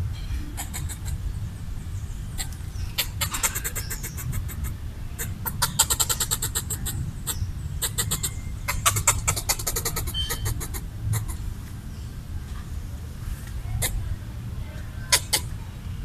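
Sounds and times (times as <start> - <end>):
squirrel chattering: 0.5 - 1.3, 2.3 - 11.5, 13.8 - 14.1, 15.0 - 15.6.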